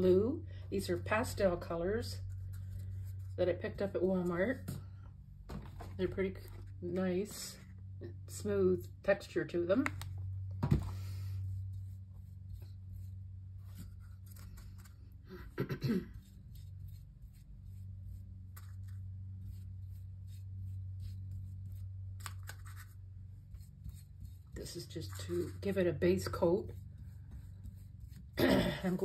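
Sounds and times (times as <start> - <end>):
steady low hum: 0.0 - 29.0
paintbrush scratching on tile: 11.5 - 14.6, 16.1 - 22.0, 22.8 - 29.0.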